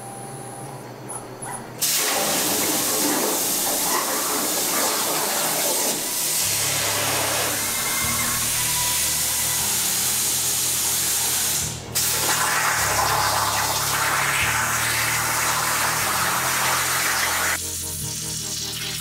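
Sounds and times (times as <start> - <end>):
air hissing through torch: 1.8 - 19.0
plasma arc cutting steel: 1.8 - 19.0.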